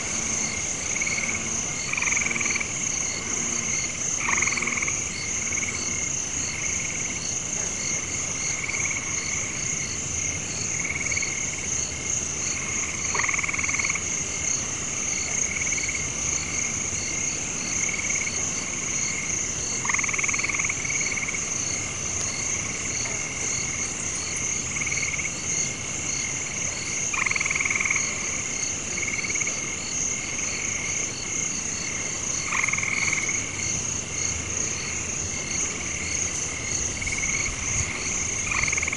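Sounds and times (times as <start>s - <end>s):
loud frog call: 0.0s - 5.0s, 12.6s - 14.1s, 19.8s - 21.4s, 27.1s - 28.4s, 32.4s - 33.6s, 37.0s - 38.9s
high insect trill: 0.0s - 38.9s.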